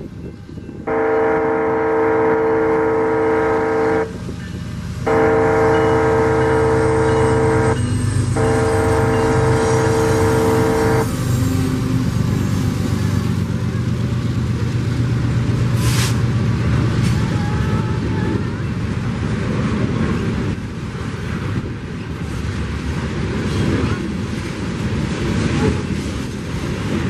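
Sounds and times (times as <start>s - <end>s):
low diesel engine rumble: 0.0s - 24.8s
locomotive air horn blasts: 0.8s - 4.3s, 5.0s - 11.3s.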